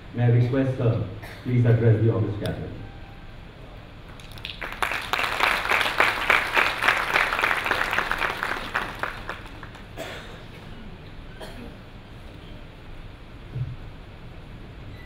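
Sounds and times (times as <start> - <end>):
audience applauding: 4.1 - 10.0.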